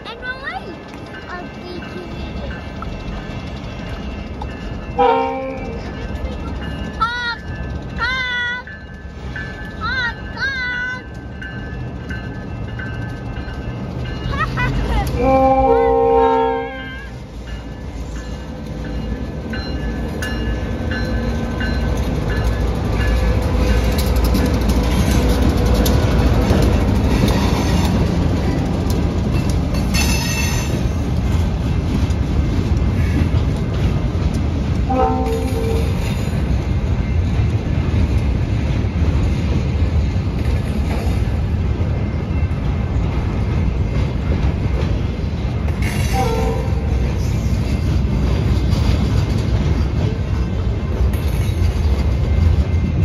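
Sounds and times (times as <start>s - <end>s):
freight train rumbling past: 0.0s - 53.0s.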